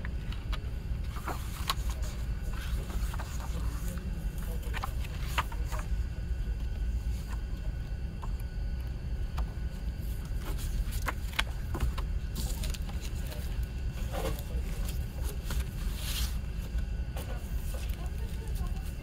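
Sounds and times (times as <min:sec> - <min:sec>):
paper pages flipped: 0:00.3 - 0:05.9, 0:10.2 - 0:16.8.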